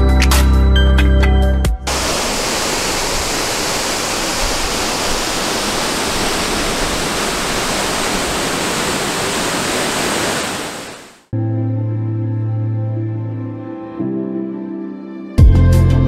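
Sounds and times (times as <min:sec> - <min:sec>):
waterfall rushing: 0:01.9 - 0:11.3.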